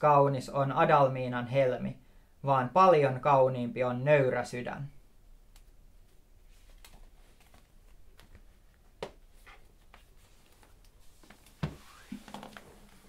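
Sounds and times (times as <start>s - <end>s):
faint rustling: 6.0s - 13.0s.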